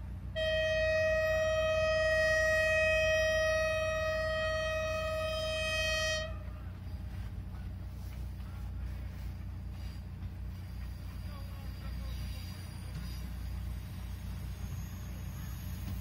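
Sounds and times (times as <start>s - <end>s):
train horn blast: 0.3s - 6.8s.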